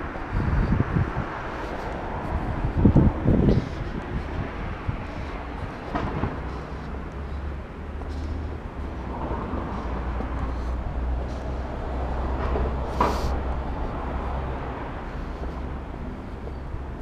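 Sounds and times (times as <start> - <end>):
wind on microphone: 0.0 - 7.8
traffic rumble: 0.0 - 17.0.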